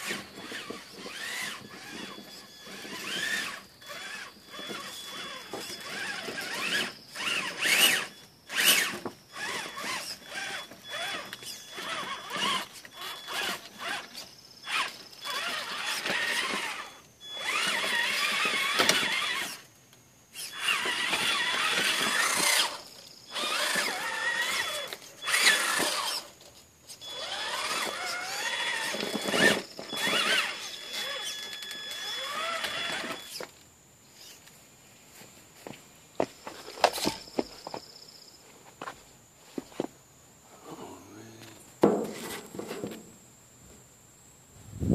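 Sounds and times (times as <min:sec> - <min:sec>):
electric motor whining: 0:00.0 - 0:19.7, 0:20.3 - 0:33.5.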